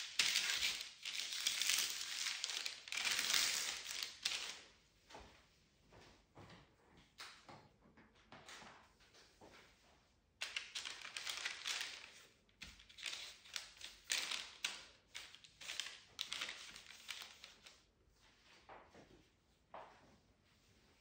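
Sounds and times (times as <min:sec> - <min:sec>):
baking parchment rustling: 0:00.0 - 0:04.7, 0:10.4 - 0:18.1.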